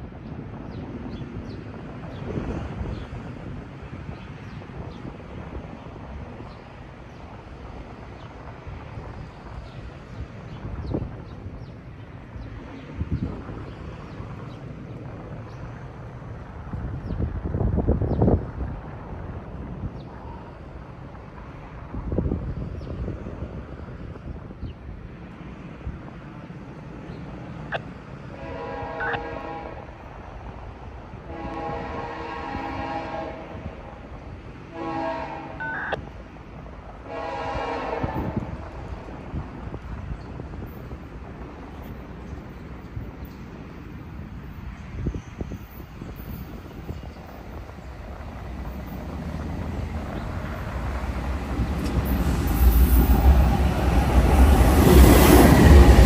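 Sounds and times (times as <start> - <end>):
diesel locomotive engine: 0.0 - 56.0
locomotive air horn blasts: 28.4 - 29.9, 31.3 - 33.6, 34.7 - 36.0, 37.1 - 38.4.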